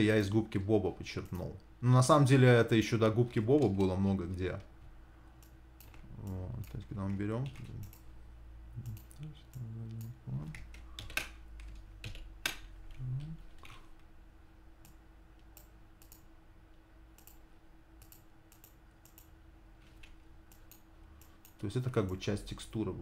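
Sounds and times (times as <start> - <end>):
computer mouse clicks: 7.5 - 8.1, 14.8 - 16.3, 17.2 - 17.4, 18.0 - 19.3, 20.0 - 22.2
keyboard clicks: 17.2 - 17.4, 18.0 - 19.3.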